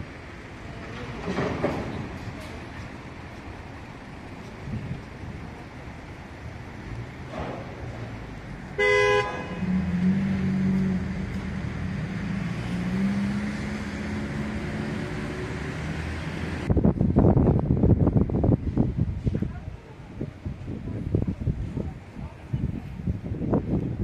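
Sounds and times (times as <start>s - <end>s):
city traffic noise: 0.0s - 24.0s
vehicle engine humming: 0.0s - 24.0s
vehicle horn blast: 8.8s - 9.8s.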